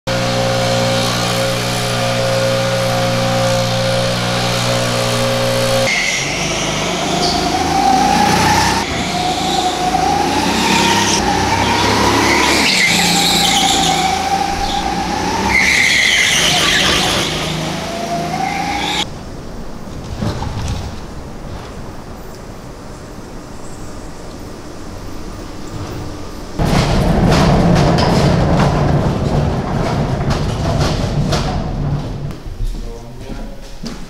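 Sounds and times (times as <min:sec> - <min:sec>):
steady droning hum: 0:00.1 - 0:15.5, 0:16.4 - 0:33.7
go-kart motor whine: 0:00.1 - 0:19.1
tyre squeal: 0:00.3 - 0:19.1.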